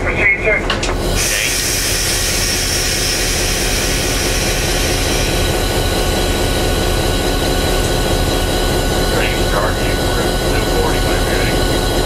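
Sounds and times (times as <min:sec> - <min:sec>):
diesel locomotive engine running: 0:00.0 - 0:12.0.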